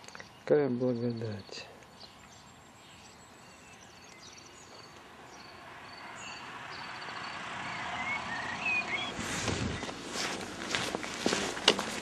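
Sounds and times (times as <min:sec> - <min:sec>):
small birds chirping: 0:00.0 - 0:10.2.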